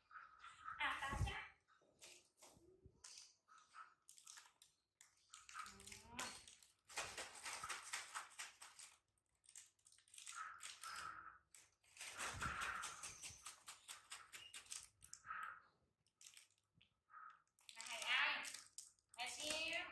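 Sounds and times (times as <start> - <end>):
plastic wrapper crinkling: 4.1 - 15.2, 16.1 - 16.7, 17.6 - 19.8.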